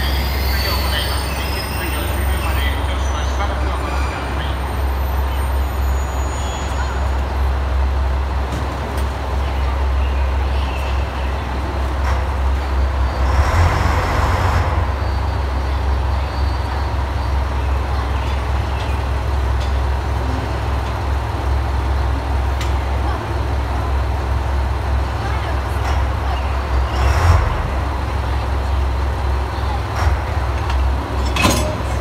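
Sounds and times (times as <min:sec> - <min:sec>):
diesel engines idling: 0:00.0 - 0:32.0.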